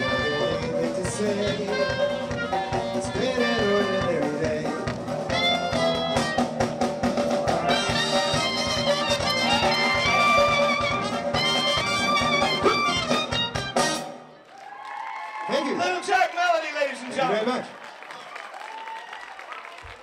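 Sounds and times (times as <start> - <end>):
drums dance beat: 0.0 - 14.0
live band playing: 0.0 - 14.4
trumpet-led brass: 0.0 - 14.4.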